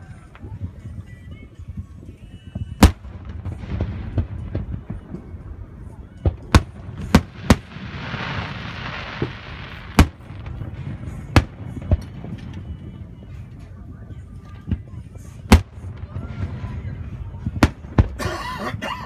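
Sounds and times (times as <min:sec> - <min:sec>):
firework shells booming: 0:06.3 - 0:12.6.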